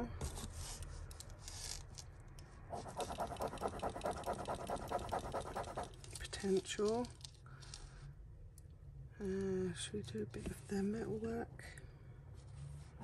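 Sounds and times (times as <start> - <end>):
metal scraping on stone: 2.7 - 6.1.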